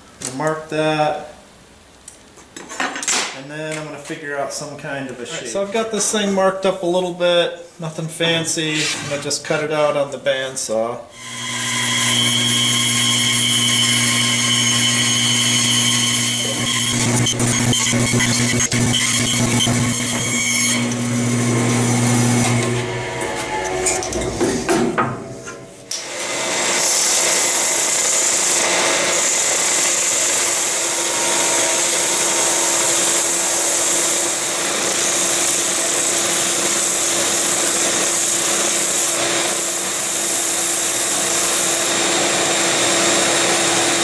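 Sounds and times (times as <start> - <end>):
spindle sander sanding wood: 11.3 - 24.7, 26.3 - 44.0.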